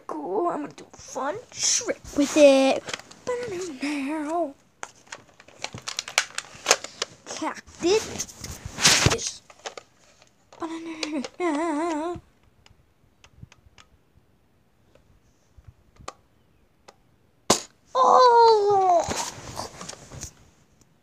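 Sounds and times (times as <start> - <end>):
boy warbling vocal noise: 0.0 - 4.6, 10.6 - 12.3, 17.9 - 19.3
sharp snap: 17.5 - 17.8
boy crying out falling in pitch: 17.9 - 19.3.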